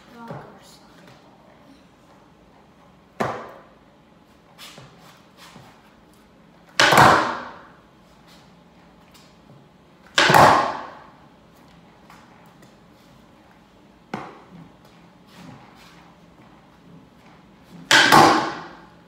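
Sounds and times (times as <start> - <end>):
skateboard slamming on concrete: 6.8 - 7.7, 10.2 - 11.0, 17.9 - 18.8.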